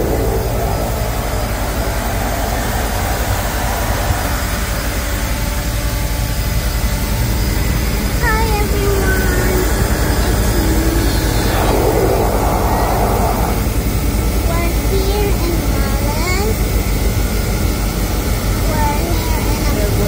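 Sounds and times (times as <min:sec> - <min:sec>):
turboprop engines droning: 0:00.0 - 0:20.0.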